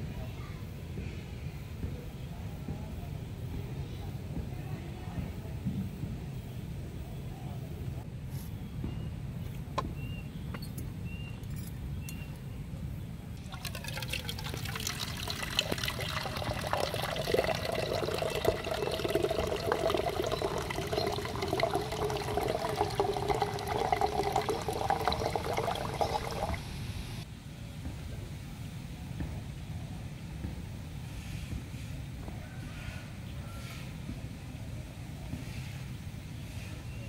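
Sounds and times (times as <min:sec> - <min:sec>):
water pouring into plastic jug: 0:13.4 - 0:26.8.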